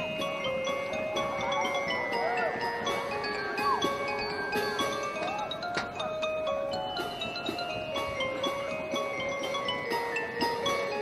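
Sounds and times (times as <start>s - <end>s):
vibraphone notes ringing: 0.0s - 11.0s.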